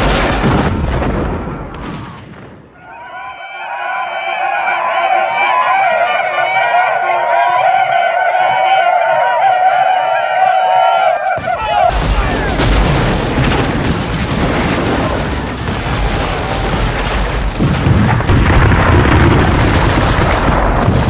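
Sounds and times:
cannon fire booms: 0.0 - 2.8, 11.4 - 21.0
chorus of high wavering yells: 2.8 - 12.4.

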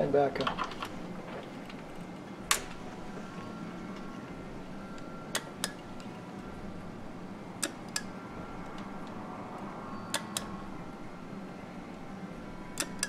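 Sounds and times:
steady low hum: 0.0 - 13.0
switch and relay clicks: 2.5 - 2.8, 5.0 - 6.1, 7.6 - 8.1, 10.1 - 10.6, 12.8 - 13.0.

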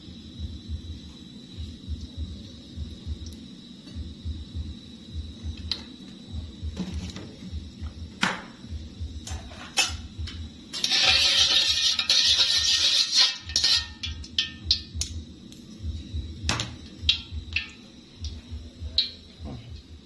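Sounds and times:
metal tongs scraping in a wok: 9.3 - 10.0, 10.7 - 14.5.

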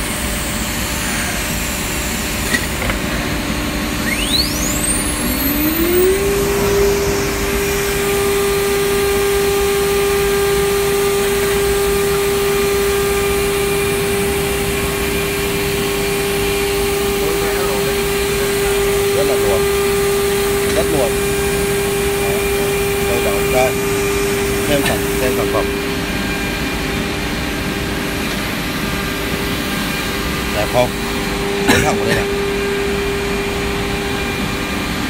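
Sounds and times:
router spindle whine: 0.0 - 35.0
machine rushing noise: 4.1 - 9.9.

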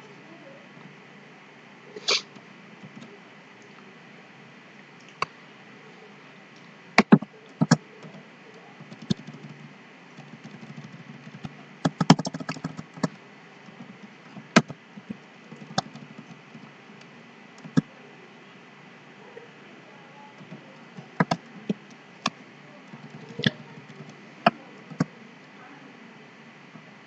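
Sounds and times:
faint steady hiss: 0.0 - 27.0
typing on computer keyboard: 7.0 - 8.2, 8.9 - 9.6, 10.2 - 13.2, 14.5 - 16.6, 20.4 - 21.4.

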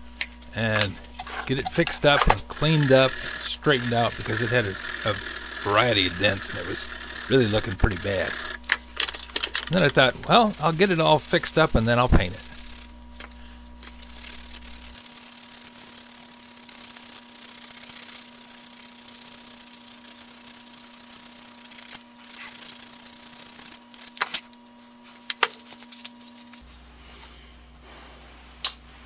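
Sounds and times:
wood rubbed on abrasive block: 1.2 - 8.6, 9.7 - 12.8.

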